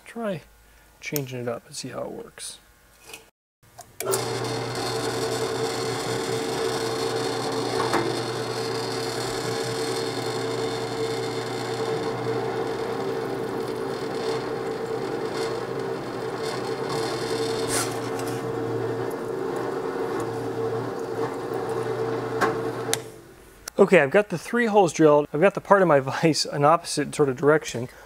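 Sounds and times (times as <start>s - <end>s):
drill press click: 3.8s - 18.5s
drill press motor running: 4.0s - 23.3s.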